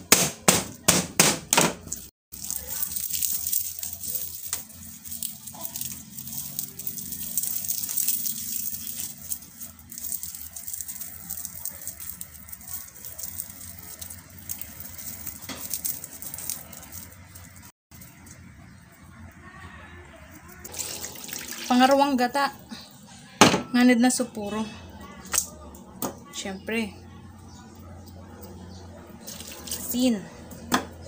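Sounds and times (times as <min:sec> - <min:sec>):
lemongrass rustling and crackling: 0:02.3 - 0:18.5.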